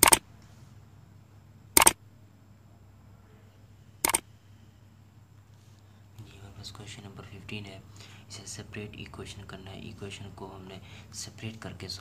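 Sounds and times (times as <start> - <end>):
mouse clicks: 0.0 - 0.2, 1.8 - 2.0, 4.0 - 4.2
faint low hum: 0.0 - 12.0.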